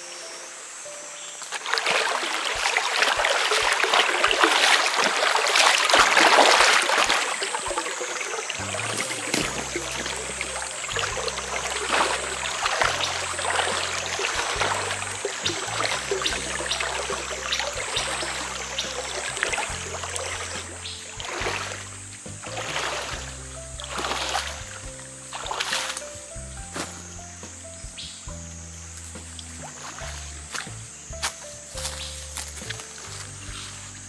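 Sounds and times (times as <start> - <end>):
water splashing and trickling: 0.0 - 34.0
high wavering whine: 7.4 - 25.0
background music with bass line: 8.6 - 34.0.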